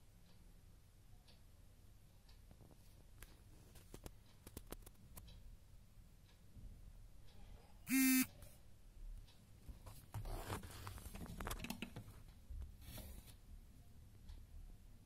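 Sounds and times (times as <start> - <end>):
short loud buzzing tone: 7.9 - 8.4.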